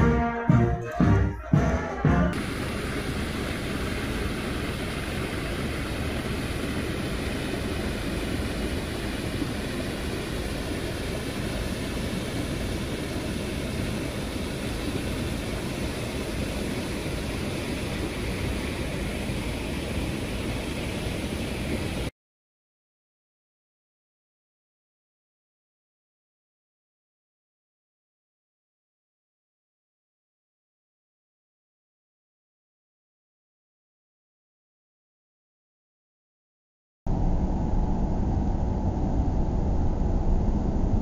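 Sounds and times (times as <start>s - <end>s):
water rushing over weir: 2.3s - 22.1s.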